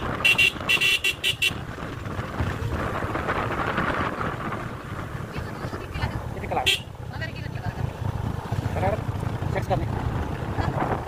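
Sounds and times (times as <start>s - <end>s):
motorcycle engine rumble: 0.0s - 11.0s
wind buffeting microphone: 0.0s - 11.0s
horn toots: 0.1s - 1.6s, 6.6s - 6.9s.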